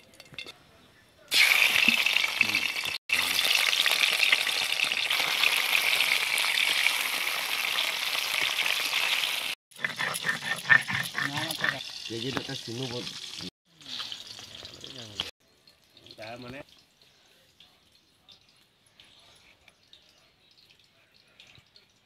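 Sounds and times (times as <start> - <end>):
fish sizzling in hot oil: 1.3 - 9.6, 11.4 - 17.4.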